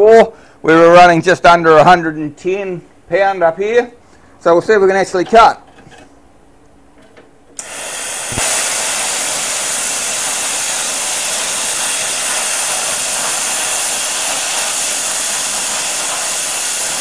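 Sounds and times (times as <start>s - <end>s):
air hissing from torch: 7.6s - 17.0s
plasma cutter loud hiss: 7.6s - 17.0s.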